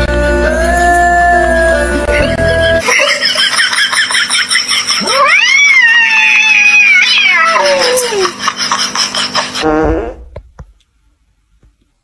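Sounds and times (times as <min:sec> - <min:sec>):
cat yowling: 0:05.0 - 0:08.3.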